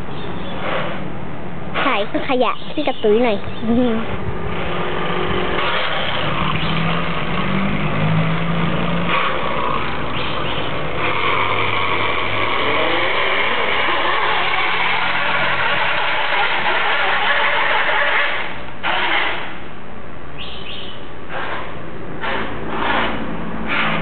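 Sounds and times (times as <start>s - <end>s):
boat engine running: 3.6s - 18.5s.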